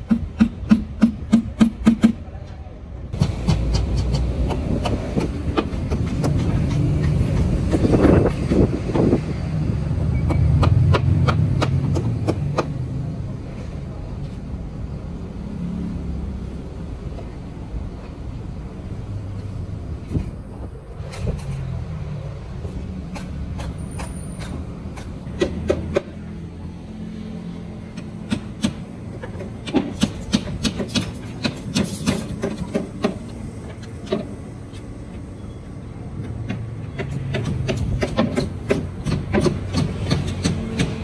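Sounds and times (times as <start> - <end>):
low rumble of road traffic: 0.0 - 41.0
hammering on timber: 3.2 - 7.8, 10.3 - 12.8, 28.0 - 33.4, 36.5 - 41.0.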